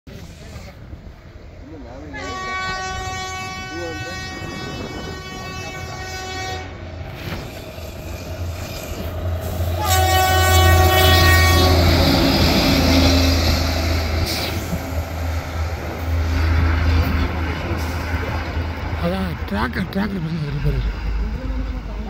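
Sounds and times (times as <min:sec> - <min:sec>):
low engine rumble: 0:05.2 - 0:22.0
machine horn: 0:09.8 - 0:12.0.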